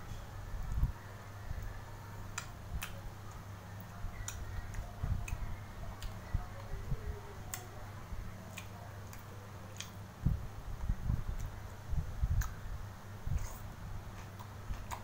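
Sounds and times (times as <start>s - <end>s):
steady low hum: 0.0s - 15.0s
man chewing: 13.3s - 15.0s.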